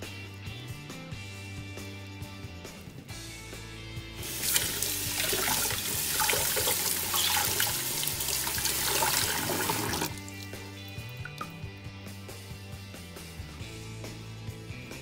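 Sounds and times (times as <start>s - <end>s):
tap water running into saucepan: 4.2s - 11.6s
sponge scrubbing saucepan: 4.3s - 10.2s.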